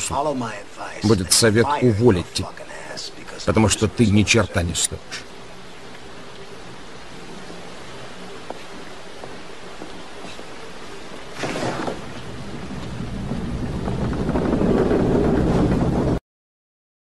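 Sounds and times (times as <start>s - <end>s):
steady rain hiss: 0.0s - 16.2s
deep rumble of thunder: 11.4s - 16.2s.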